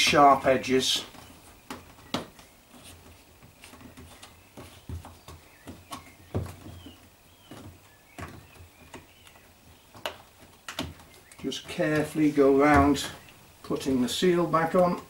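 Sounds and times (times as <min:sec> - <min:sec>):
rubber seal knocks and rubbing: 0:01.1 - 0:13.3
louder thumps: 0:11.7 - 0:13.2.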